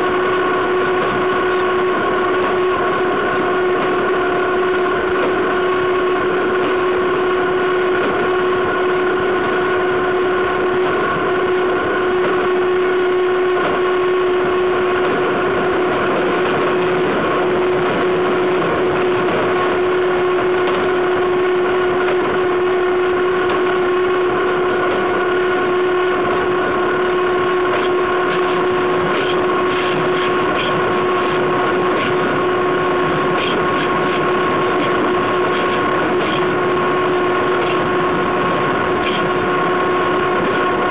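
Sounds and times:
steady whine: 0:00.0 - 0:40.9.

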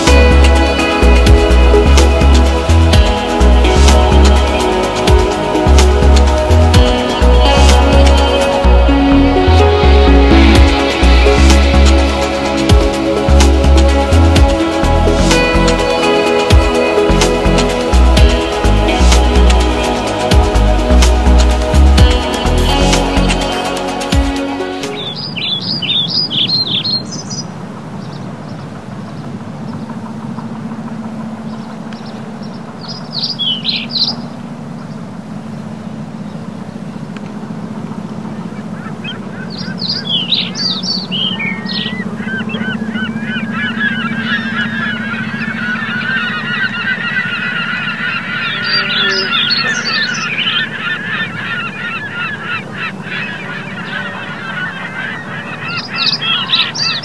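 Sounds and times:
steady low hum: 0:00.0 - 0:24.8
chatter of many birds: 0:00.0 - 0:57.0
waterfowl honking: 0:38.2 - 0:57.0.

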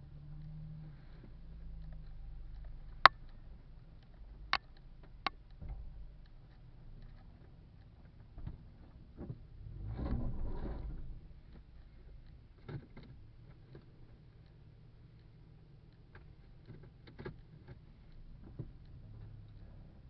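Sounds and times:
low engine hum: 0:00.0 - 0:20.0
rough rumble: 0:09.7 - 0:11.4.

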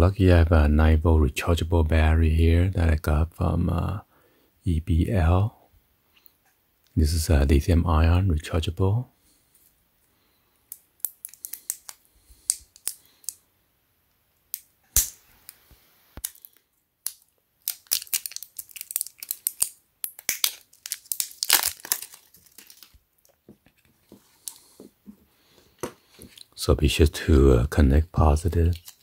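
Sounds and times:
thin plastic crinkling: 0:10.7 - 0:13.4, 0:14.5 - 0:24.8, 0:28.2 - 0:29.0.

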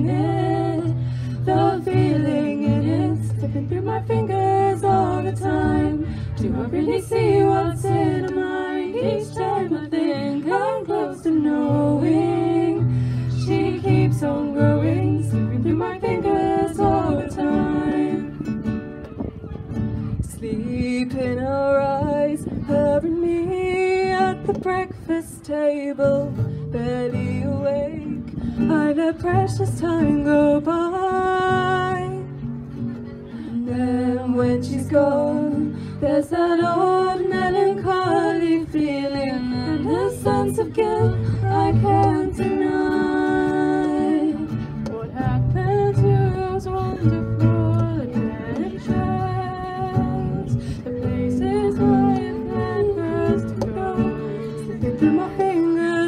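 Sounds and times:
young female voices singing: 0:00.0 - 0:18.6, 0:33.6 - 0:56.0
acoustic guitar: 0:00.0 - 0:56.0.

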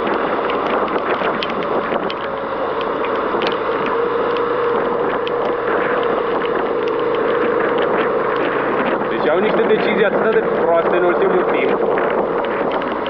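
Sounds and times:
motorcycle engine running: 0:00.0 - 0:13.0
sharp ticks: 0:00.0 - 0:13.0
steady whine: 0:00.0 - 0:13.0.

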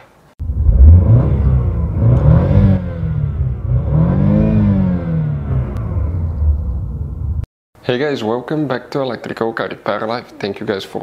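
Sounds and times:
car engine revving: 0:00.4 - 0:07.5.

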